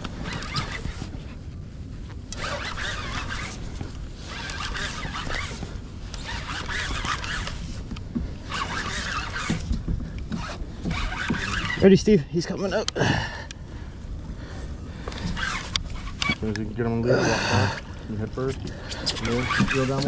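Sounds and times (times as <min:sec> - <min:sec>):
fishing reel cranking: 0:00.0 - 0:01.1, 0:02.3 - 0:03.6, 0:04.2 - 0:07.8, 0:08.4 - 0:12.2, 0:15.0 - 0:16.6, 0:17.3 - 0:20.0.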